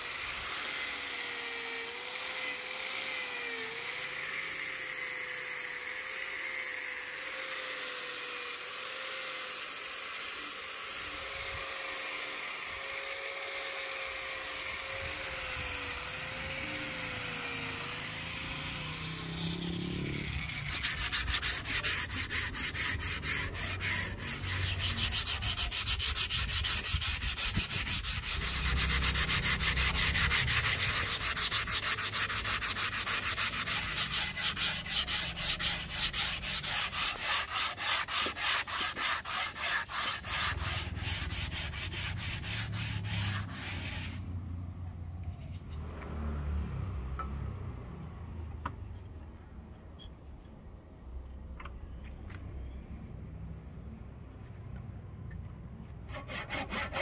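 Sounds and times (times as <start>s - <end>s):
electric sander motor whine: 5.7s - 43.9s
sandpaper rubbing on wood: 15.8s - 44.3s, 56.1s - 57.0s.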